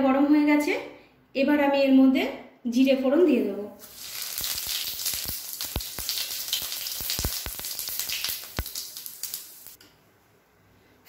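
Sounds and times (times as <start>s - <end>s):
seeds sizzling in hot oil: 3.8s - 9.8s
sharp pops and crackles: 3.8s - 9.8s.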